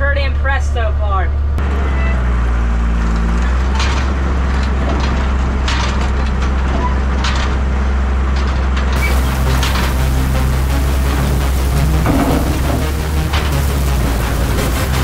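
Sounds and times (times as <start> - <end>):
bale wagon running: 1.6 - 15.0
straw bale crackling and scraping: 9.0 - 15.0.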